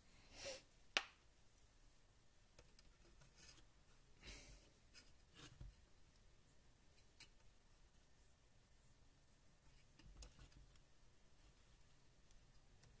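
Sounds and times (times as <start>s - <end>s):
cable rustling and rubbing: 2.6s - 4.1s, 9.6s - 13.0s.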